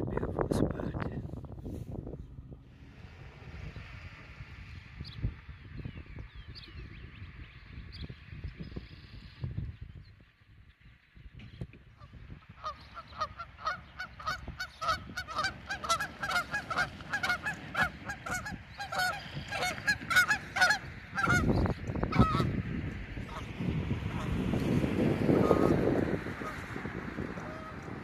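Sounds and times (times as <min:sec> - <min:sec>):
low rushing noise: 0:00.0 - 0:06.3
geese honking: 0:12.5 - 0:22.6, 0:23.2 - 0:23.5, 0:24.1 - 0:24.4, 0:25.2 - 0:28.0.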